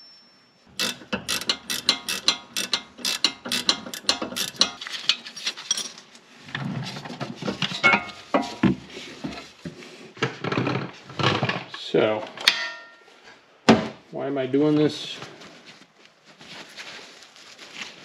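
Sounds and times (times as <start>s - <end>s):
ratchet wrench clicking: 0.7s - 4.8s
rough clicking and knocking: 0.8s - 4.8s.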